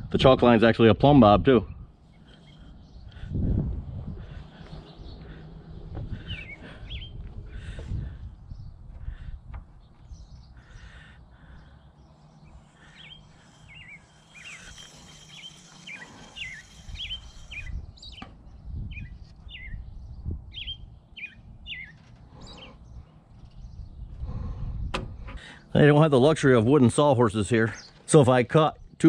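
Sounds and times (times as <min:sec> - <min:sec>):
small bird chirping: 0:09.8 - 0:24.2.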